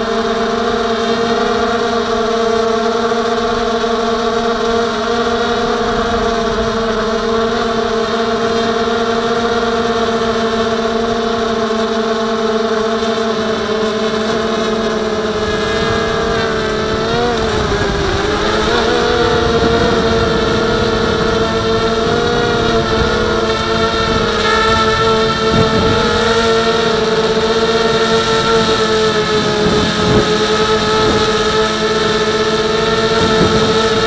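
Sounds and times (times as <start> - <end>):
quadcopter motors whining: 0.0 - 34.0
wind rush: 14.4 - 34.0.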